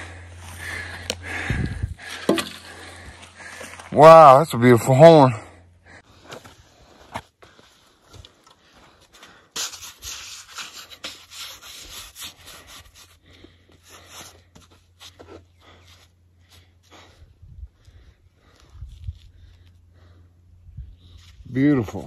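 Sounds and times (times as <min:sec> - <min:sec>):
glove scraping antler: 0:09.5 - 0:15.9.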